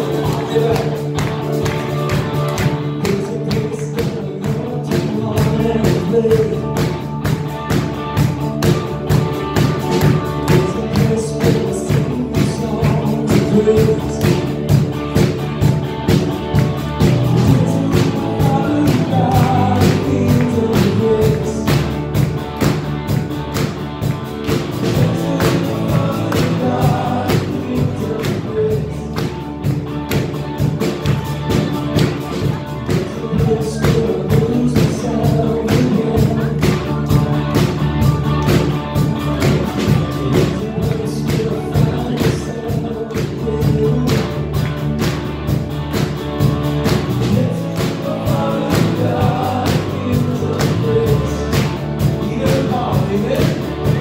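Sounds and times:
man singing into a microphone: 0.0s - 1.3s, 2.8s - 7.2s, 9.9s - 14.9s, 17.3s - 22.0s, 24.8s - 29.3s, 32.8s - 37.3s, 39.2s - 44.7s, 47.2s - 54.0s
electric guitar strumming: 0.0s - 54.0s
second electric guitar: 0.0s - 54.0s
steady beat: 0.0s - 54.0s.

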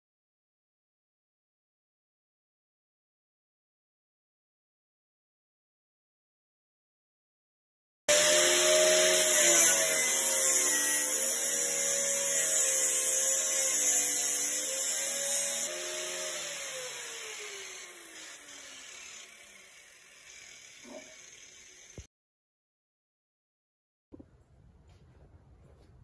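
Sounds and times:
angle grinder grinding metal: 8.1s - 22.1s
grinder motor winding down: 8.1s - 22.1s.

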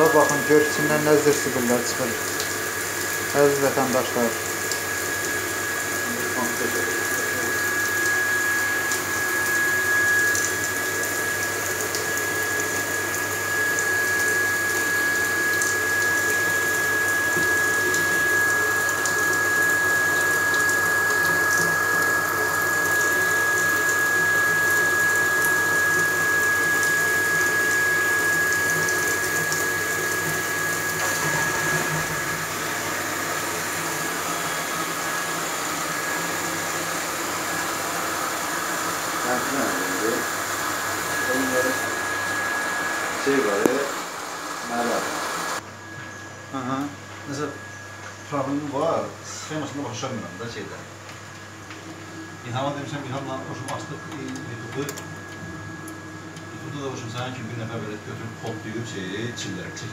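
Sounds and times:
water pouring into bathtub: 0.0s - 45.6s
electric pump whining: 0.0s - 59.9s.

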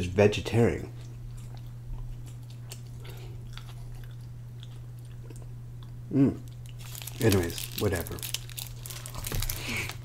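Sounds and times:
low electrical hum: 0.0s - 10.0s
person chewing: 0.9s - 7.4s.

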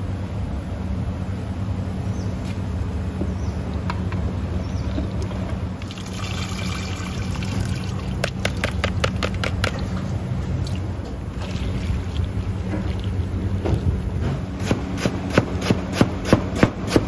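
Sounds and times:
steady low hum: 0.0s - 17.0s
liquid pouring and splashing: 5.1s - 9.0s, 9.6s - 13.4s.

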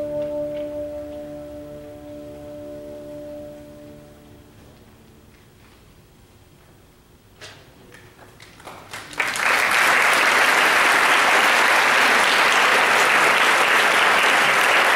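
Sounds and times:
audience applauding: 8.3s - 14.9s.

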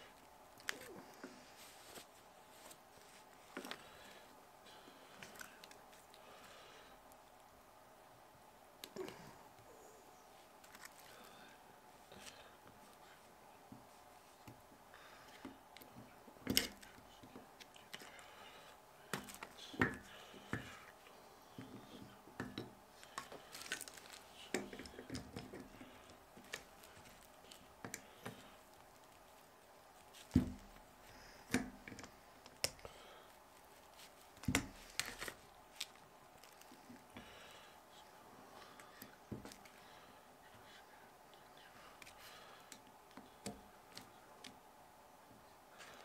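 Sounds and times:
faint rustle: 0.0s - 7.6s.

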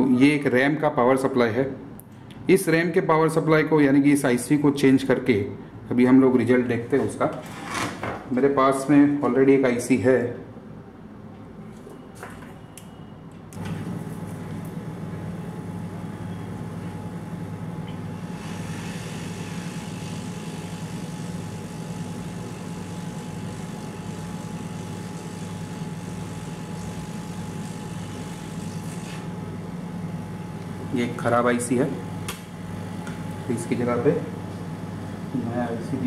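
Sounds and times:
hot air station humming and hissing: 13.6s - 31.3s.

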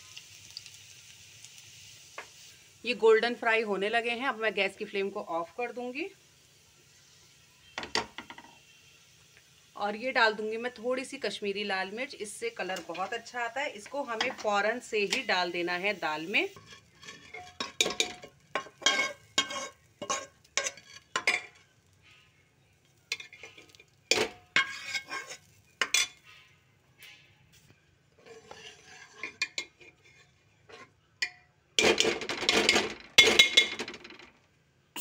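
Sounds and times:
ladle scraping steel pot: 16.5s - 21.6s, 23.1s - 27.3s, 28.2s - 31.0s.

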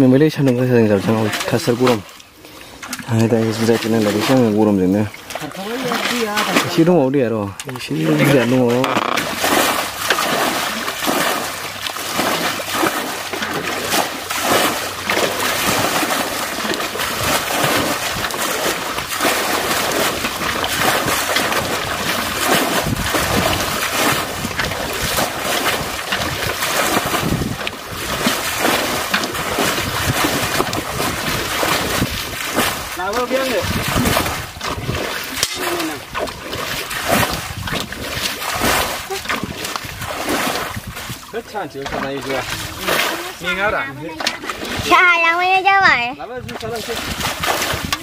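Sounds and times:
muddy water splashing and sloshing: 0.0s - 48.0s.

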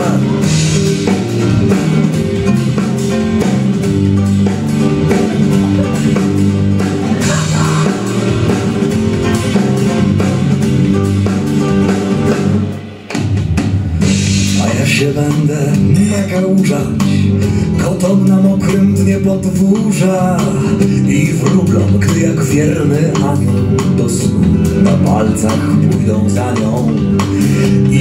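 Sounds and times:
drum hits: 0.0s - 16.9s
instrumental band music: 0.0s - 28.0s.

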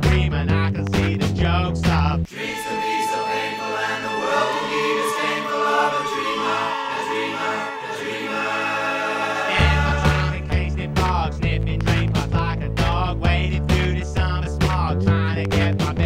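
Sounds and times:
bass: 0.0s - 2.3s, 9.6s - 16.0s
held sung voices: 2.3s - 14.1s.

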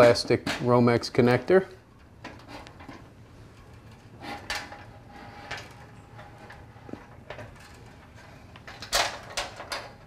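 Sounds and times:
cable scraping and knocking on metal: 2.2s - 10.0s.

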